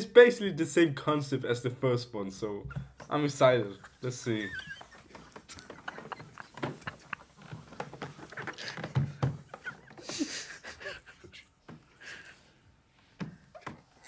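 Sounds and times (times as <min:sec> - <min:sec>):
men stifling laughter: 0:03.8 - 0:12.5.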